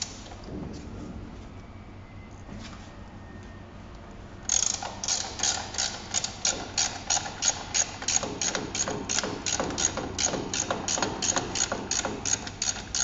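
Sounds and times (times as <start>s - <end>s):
ratchet wrench clicking: 4.5s - 13.0s.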